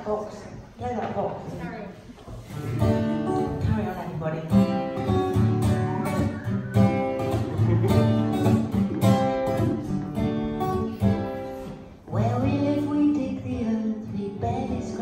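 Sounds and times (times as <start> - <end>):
strummed acoustic guitar chords: 2.5 - 3.8, 4.5 - 15.0
upright bass: 5.1 - 11.0.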